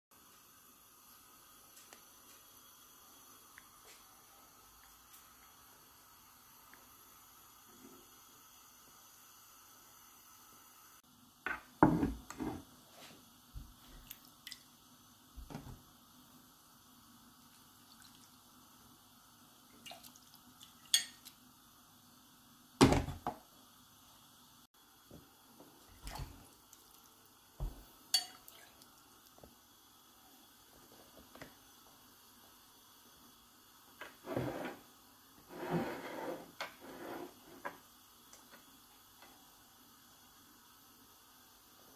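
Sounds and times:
room hum: 0:00.1 - 0:41.9.

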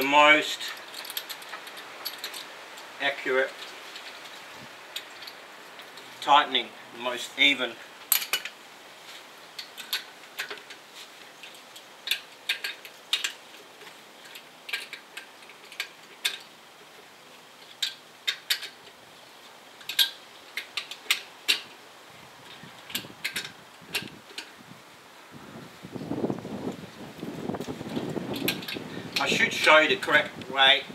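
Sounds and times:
metallic clicks of wheel nuts: 0:00.0 - 0:06.3, 0:08.0 - 0:08.6, 0:09.5 - 0:17.0, 0:17.6 - 0:21.8, 0:22.5 - 0:24.6, 0:28.3 - 0:30.2
socket wrench clicking: 0:17.8 - 0:18.8, 0:19.8 - 0:21.7.

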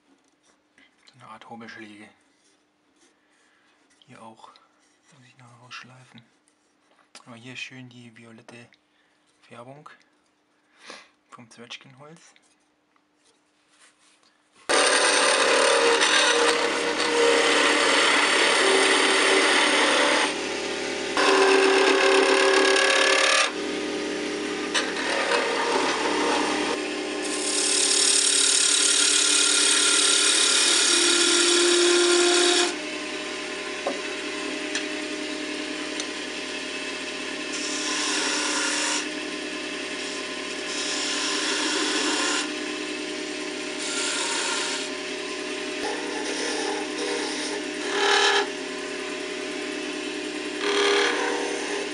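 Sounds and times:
lathe chisel scraping wood: 0:14.7 - 0:51.9.

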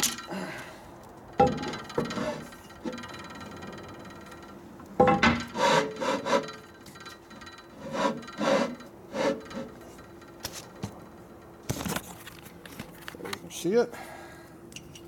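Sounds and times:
cylinder head scraping on metal: 0:01.4 - 0:04.4, 0:05.0 - 0:10.8.

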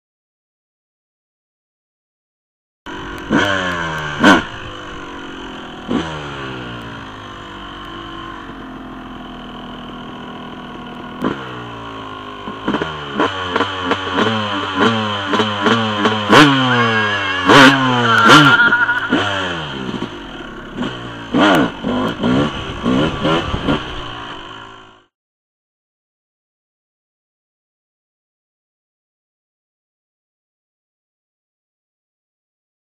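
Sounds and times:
dirt bike engine revving: 0:02.9 - 0:25.0.

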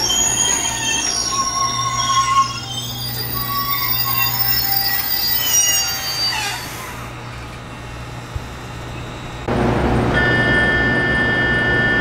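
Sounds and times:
train wheels squealing on rails: 0:00.0 - 0:09.4.

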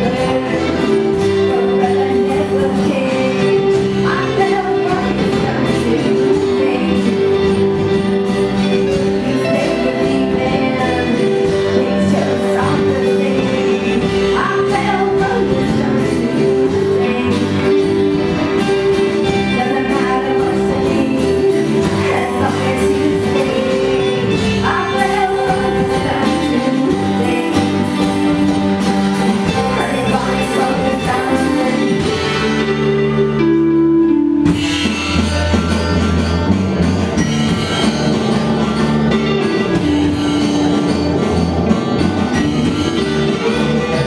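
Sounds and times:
woman singing: 0:00.0 - 0:32.8
electric and acoustic guitars: 0:00.0 - 0:44.0.

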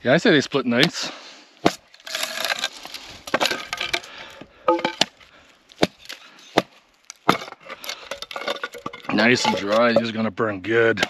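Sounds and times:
axe chopping wood: 0:01.6 - 0:01.9, 0:05.8 - 0:07.6
split wood clattering: 0:01.6 - 0:05.2, 0:05.8 - 0:10.2.

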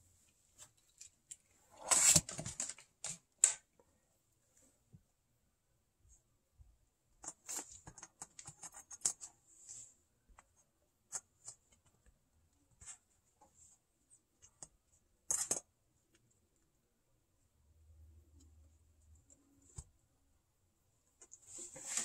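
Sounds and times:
kittens scratching and rustling paper: 0:01.7 - 0:03.3, 0:07.2 - 0:09.9.

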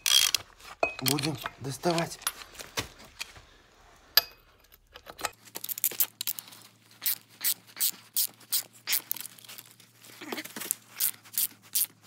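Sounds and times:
ratchet wrench clicking: 0:00.0 - 0:00.4, 0:07.0 - 0:09.4.

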